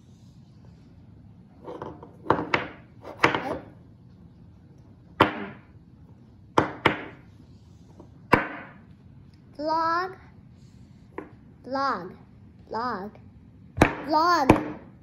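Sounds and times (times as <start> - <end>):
wooden block knocking on table: 6.6 - 7.2.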